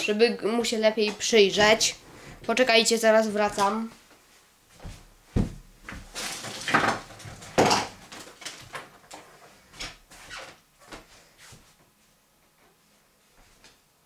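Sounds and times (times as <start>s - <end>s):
person moving about knocking: 4.8s - 6.2s.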